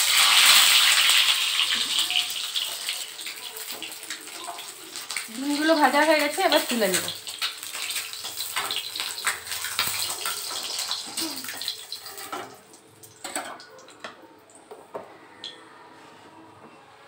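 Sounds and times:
hot oil sizzling: 0:00.0 - 0:13.5.

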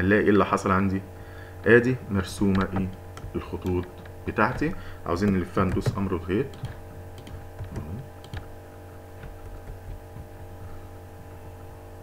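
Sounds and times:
low electrical hum: 0:00.0 - 0:12.0
mouse and keyboard clicks: 0:02.4 - 0:08.5.

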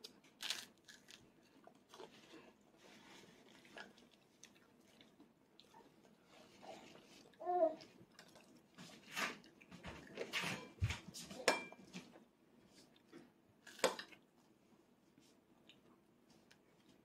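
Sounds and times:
toddler humming: 0:07.4 - 0:07.8
cutlery clinking against dishes: 0:11.4 - 0:12.0.

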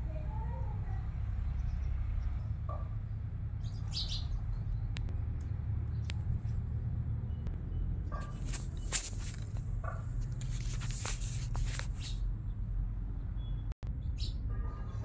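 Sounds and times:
bird chirps: 0:03.6 - 0:05.0.

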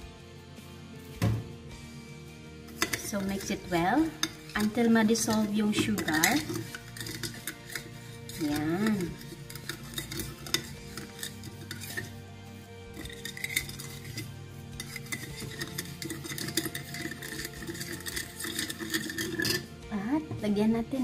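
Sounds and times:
metal spoon clinking in ceramic bowl: 0:02.7 - 0:12.2, 0:12.9 - 0:19.7.

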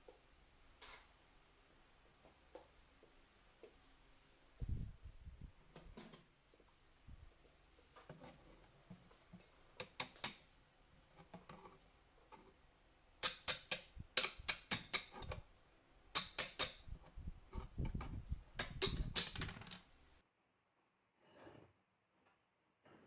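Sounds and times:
hammer tapping chisel on panel: 0:13.2 - 0:15.3, 0:16.2 - 0:17.0.

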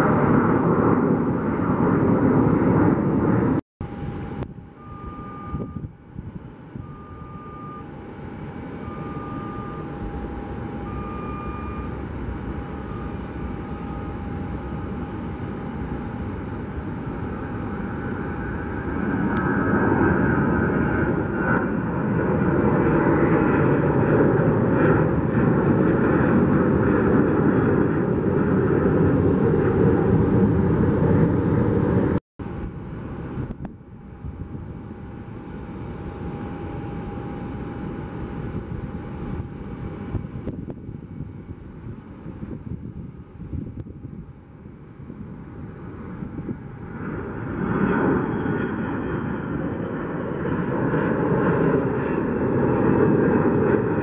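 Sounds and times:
distant jet rumble: 0:00.0 - 0:54.0
jet airliner engines at takeoff: 0:00.0 - 0:54.0.

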